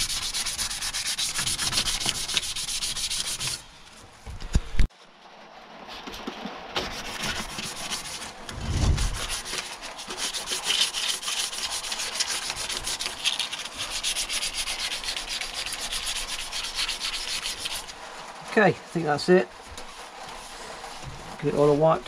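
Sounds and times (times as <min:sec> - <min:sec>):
sandpaper rubbing on metal: 0:00.0 - 0:03.8, 0:06.8 - 0:22.0
dull low bump: 0:08.5 - 0:09.2.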